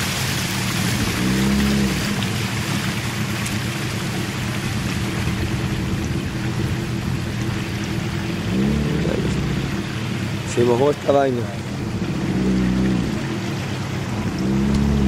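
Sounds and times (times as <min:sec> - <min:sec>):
boat motor running: 0:00.0 - 0:15.0
rain on water: 0:00.0 - 0:15.0.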